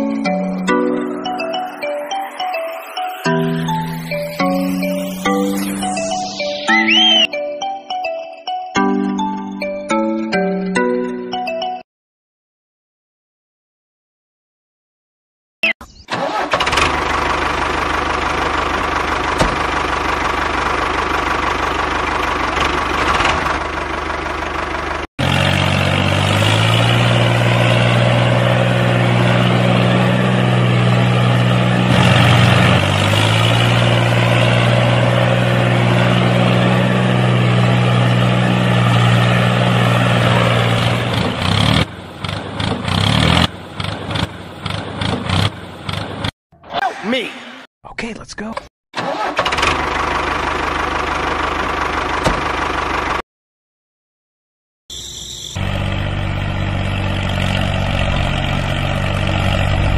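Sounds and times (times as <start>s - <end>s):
tractor engine running: 16.1s - 46.3s, 49.0s - 53.2s, 55.0s - 59.9s.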